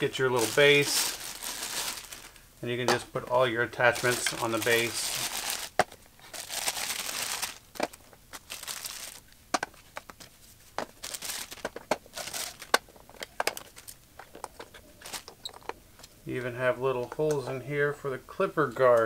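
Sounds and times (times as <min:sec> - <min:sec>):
plastic bags crinkling: 0:00.0 - 0:15.8
plastic parts clicking: 0:11.6 - 0:15.8.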